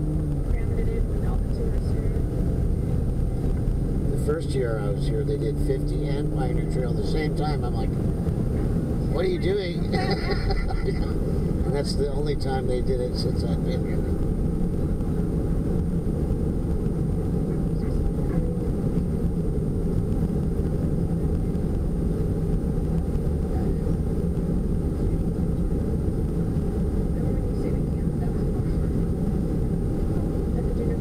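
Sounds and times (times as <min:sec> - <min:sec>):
road and engine noise in van: 0:00.0 - 0:31.0.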